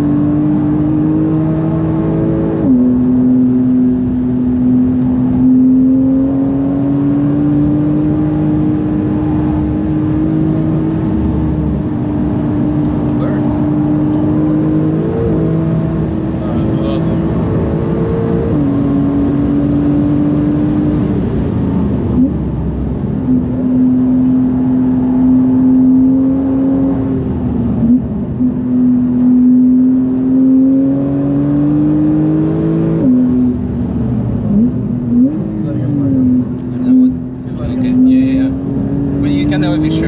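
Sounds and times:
car engine pulling hard: 0.0s - 40.0s.

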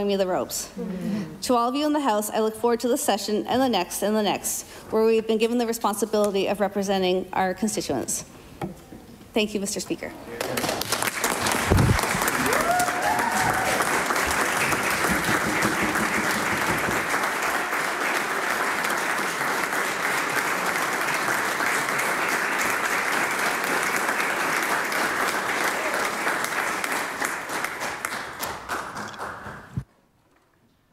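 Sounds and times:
applause: 10.4s - 29.9s.

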